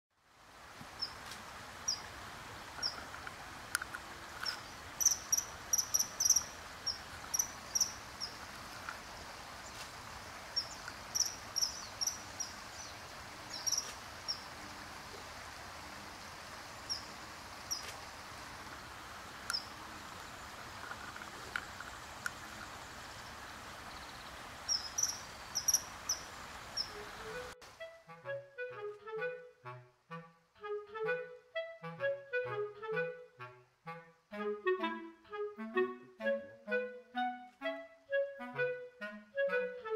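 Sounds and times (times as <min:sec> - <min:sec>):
steady background hiss: 0:00.2 - 0:39.9
kingfisher calling: 0:04.5 - 0:08.4, 0:10.6 - 0:12.5, 0:13.6 - 0:14.4, 0:24.7 - 0:27.4.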